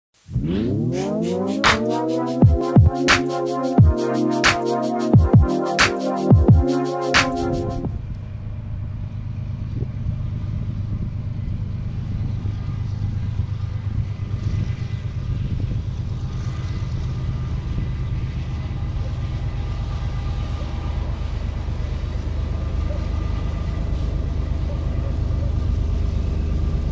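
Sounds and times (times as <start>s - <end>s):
electronic music: 0.3s - 7.9s
distant diesel locomotives rumbling: 8.0s - 26.9s.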